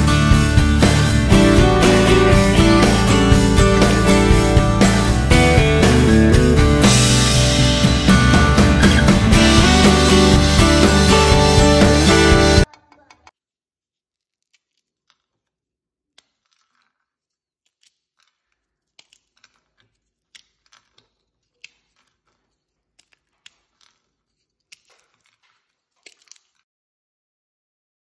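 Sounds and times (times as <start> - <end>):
fried puris snapping and crumbling: 13.8 - 26.7.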